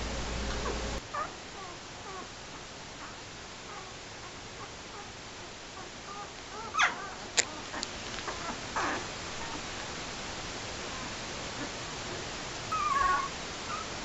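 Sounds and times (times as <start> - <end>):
puppies whimpering and squeaking: 0.5 - 2.3, 3.0 - 5.1, 5.8 - 9.9, 10.9 - 14.0.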